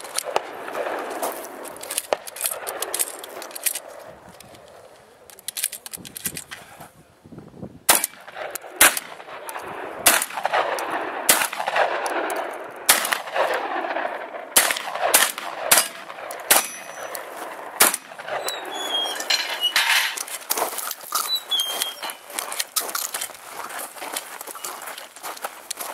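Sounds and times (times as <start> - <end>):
shotgun shots echoing: 0.0 - 4.1, 7.9 - 20.4.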